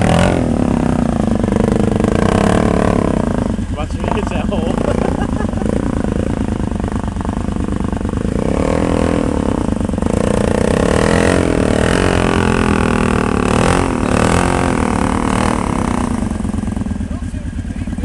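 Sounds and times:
atv engine revving: 0.0s - 18.0s.

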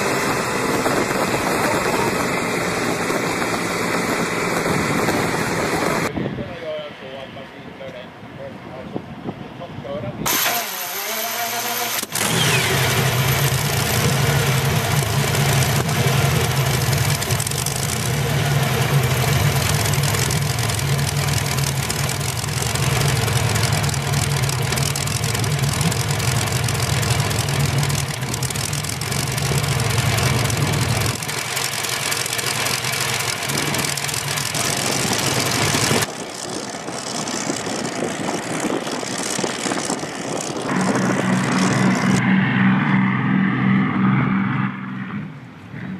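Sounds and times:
boat running on water: 0.0s - 6.2s, 10.3s - 45.9s
boat engines idling loudly: 10.6s - 42.2s.

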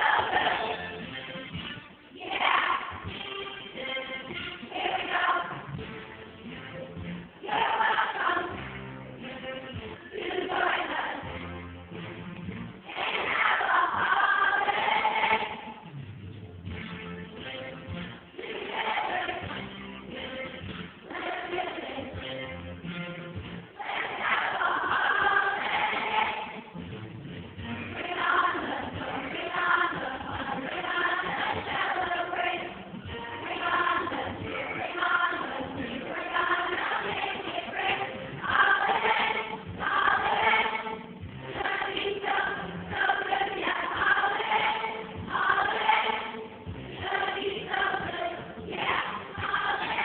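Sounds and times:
children's choir singing: 0.0s - 1.1s, 2.1s - 5.8s, 7.4s - 8.9s, 10.1s - 11.6s, 12.9s - 15.9s, 18.4s - 22.3s, 23.8s - 26.8s, 27.8s - 50.0s.

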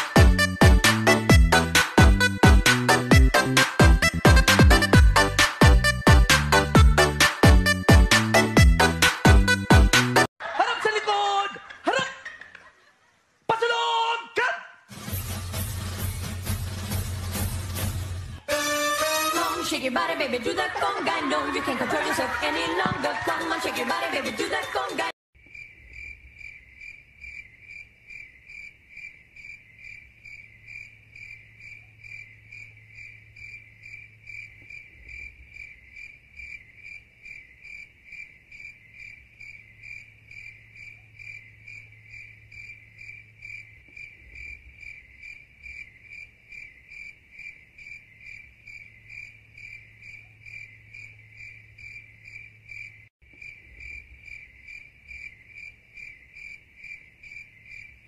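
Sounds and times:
cricket chirping: 25.4s - 58.0s.

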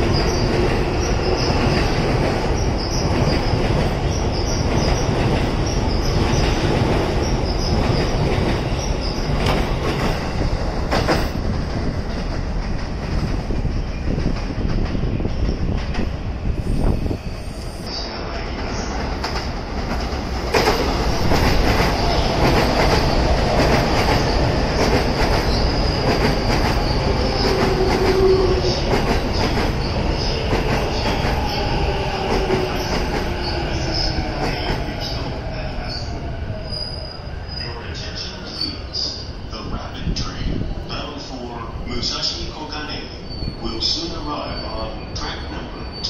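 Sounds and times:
train wheels squealing: 25.4s - 39.3s, 42.6s - 46.0s.

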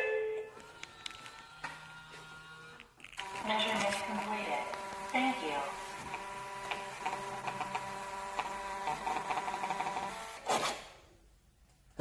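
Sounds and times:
receipt printer running: 0.5s - 10.4s
paper slip torn free: 2.7s - 5.2s.

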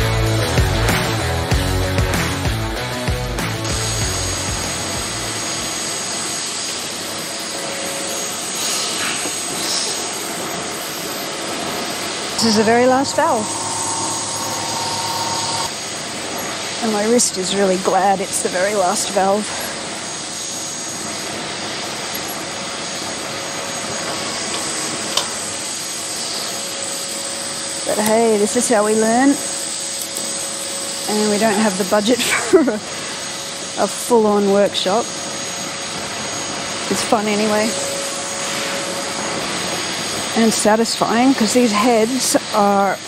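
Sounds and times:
faint high whine: 11.2s - 16.0s, 30.4s - 40.8s
machine-like rushing noise: 12.4s - 15.7s.

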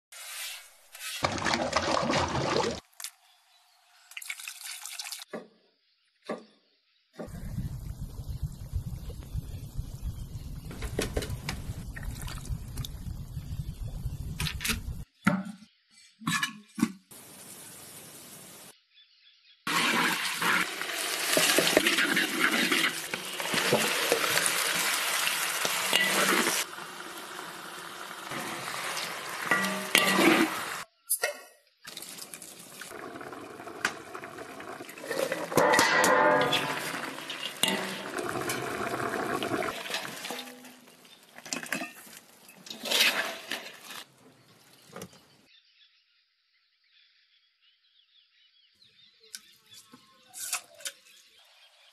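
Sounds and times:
stirring and pan clatter: 19.7s - 27.4s, 28.2s - 30.8s, 32.9s - 44.1s
hot oil sizzling in a wok: 19.7s - 30.8s.

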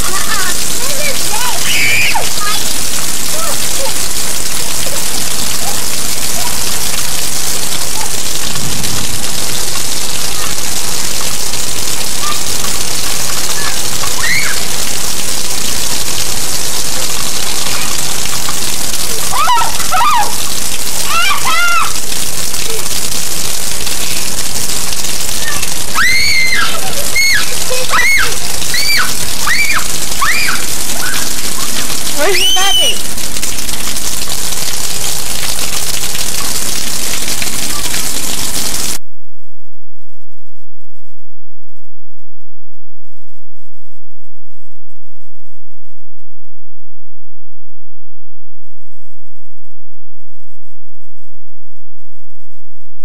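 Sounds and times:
child calling: 0.0s - 4.1s, 4.7s - 6.8s, 10.2s - 11.4s, 12.0s - 14.8s, 19.2s - 22.0s, 25.3s - 33.1s
steady rain: 0.0s - 39.0s.

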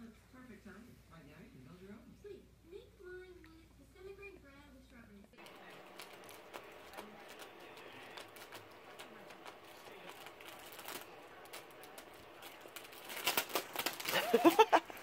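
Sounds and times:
plastic wrapper crinkling: 5.4s - 15.0s.

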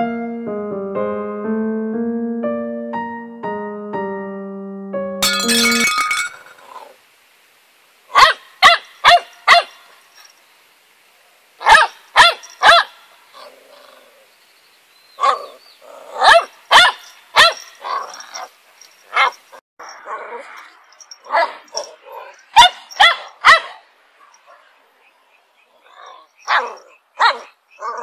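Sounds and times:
puppy barking: 8.1s - 9.8s, 11.6s - 13.5s, 15.2s - 18.5s, 19.1s - 19.4s, 21.2s - 24.7s, 25.9s - 28.0s.

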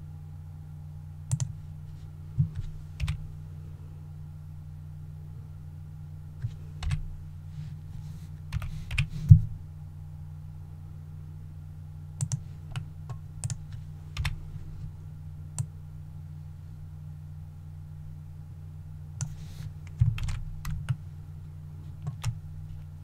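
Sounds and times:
steady low hum: 0.0s - 23.0s
computer keyboard typing: 1.3s - 1.5s, 2.6s - 3.2s, 6.4s - 7.0s, 8.5s - 9.1s, 12.2s - 14.4s, 19.2s - 21.0s, 22.0s - 22.4s.

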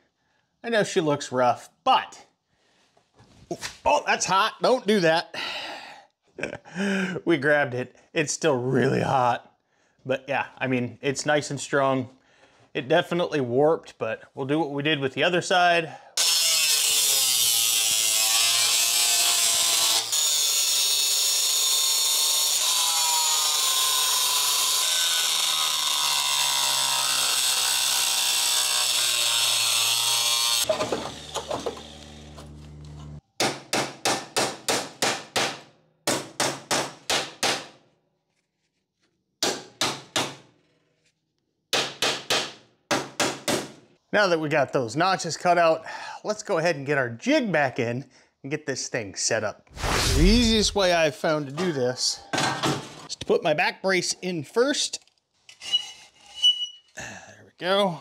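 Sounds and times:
angle grinder cutting steel: 16.2s - 33.2s, 49.8s - 50.9s.

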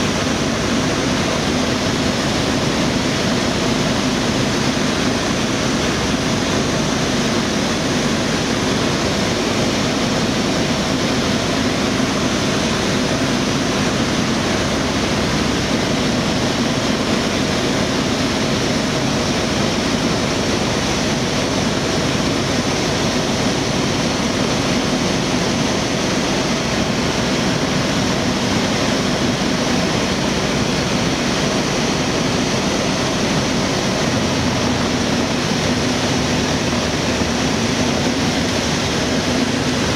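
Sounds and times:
propeller aircraft engine: 0.0s - 39.9s
rushing airflow: 0.0s - 39.9s.

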